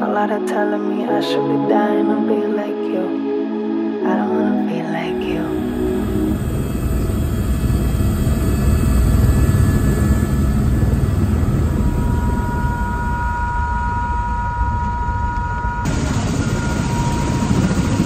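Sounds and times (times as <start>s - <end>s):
helicopter rotor rumble: 5.1s - 18.0s
high engine whine: 5.1s - 18.0s.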